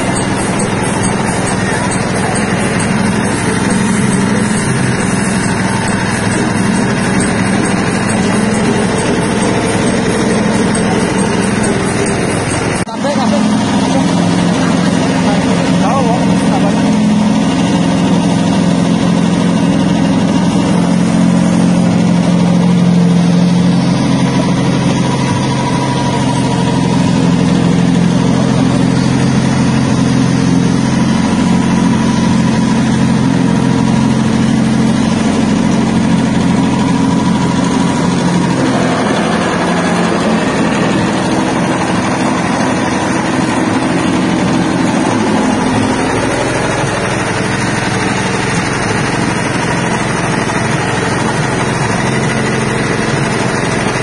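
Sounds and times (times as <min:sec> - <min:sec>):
harsh noisy machine running: 0:00.0 - 0:54.0
machine motor humming: 0:00.0 - 0:54.0.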